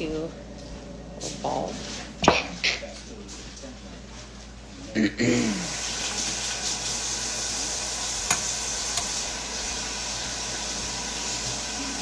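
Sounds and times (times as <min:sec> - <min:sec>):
kitchen tap running water: 0:05.4 - 0:12.0.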